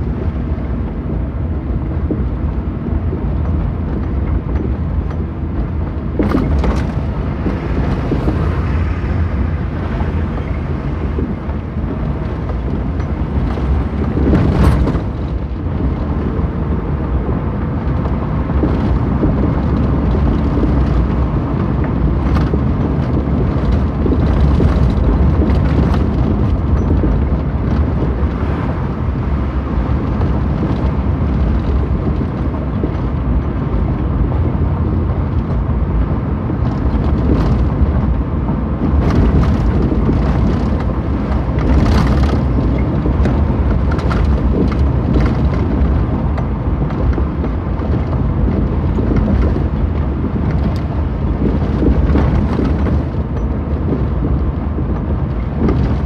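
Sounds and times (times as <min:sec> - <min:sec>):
car road and engine rumble: 0:00.0 - 0:56.0
knocks and rattles over rough road: 0:00.0 - 0:56.0.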